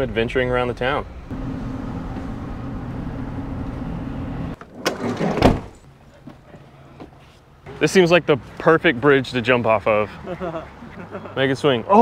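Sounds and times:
motor vehicle humming: 0.8 - 4.6.

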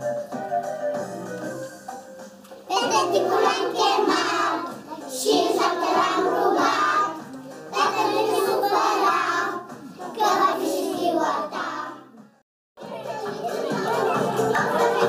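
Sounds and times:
backing music: 0.0 - 15.0
children singing: 2.7 - 12.2, 12.8 - 15.0.

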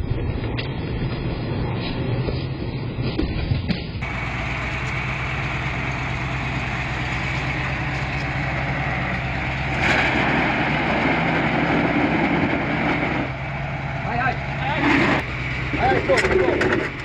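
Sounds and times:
tractor diesel engine: 4.0 - 17.0.

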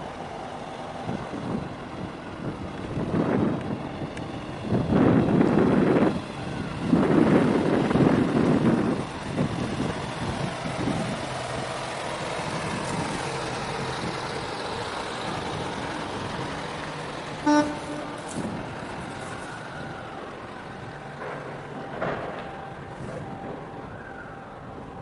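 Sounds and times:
steady outdoor noise: 0.0 - 25.0
short loud horn toot: 17.4 - 18.3.

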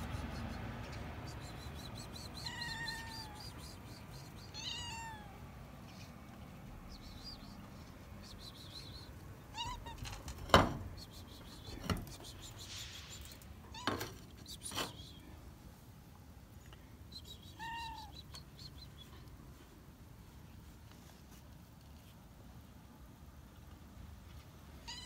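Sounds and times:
cat meowing: 2.3 - 3.6, 4.4 - 5.4, 9.5 - 10.2, 17.5 - 18.2.

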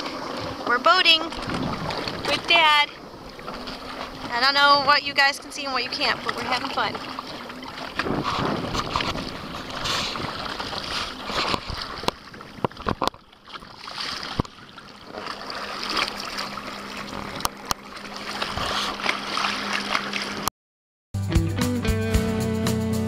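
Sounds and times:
water splashing against hull: 0.0 - 20.5
wind noise: 8.0 - 13.1.

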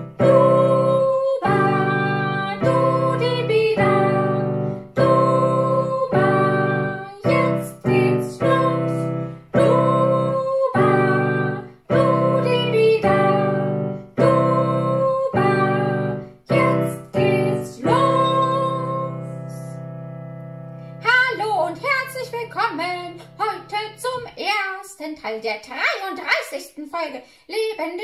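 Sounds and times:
woman singing: 0.0 - 19.8, 21.0 - 24.7
piano chords: 0.0 - 24.4.

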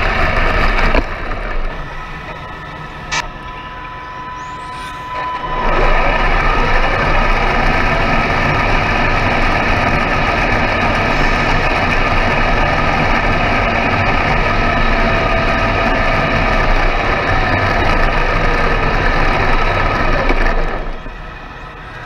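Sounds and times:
toy truck motor humming: 0.0 - 22.0.

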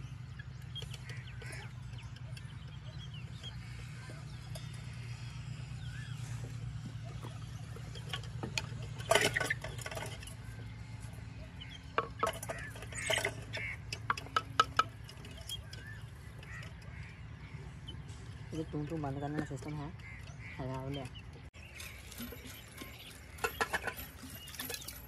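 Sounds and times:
steady low hum: 0.0 - 25.0
kitchen utensils clattering: 7.8 - 10.4, 12.0 - 16.8, 21.7 - 25.0.

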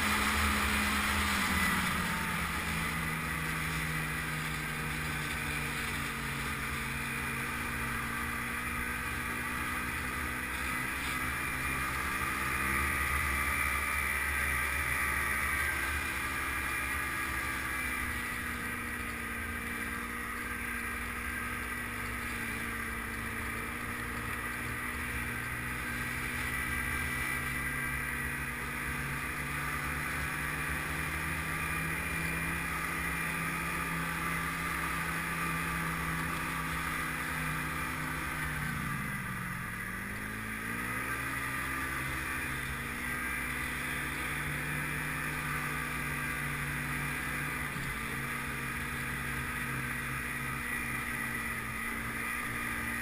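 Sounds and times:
snowmobile engine running: 0.0 - 53.0
steady whine: 0.0 - 53.0.

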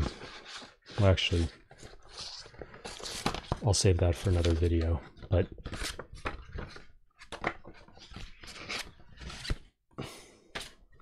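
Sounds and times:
books rustling and scraping: 0.0 - 9.8.

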